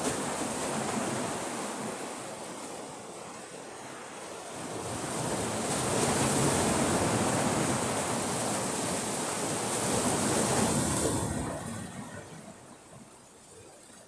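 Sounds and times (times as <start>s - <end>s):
sea waves washing over shore: 0.0s - 14.0s.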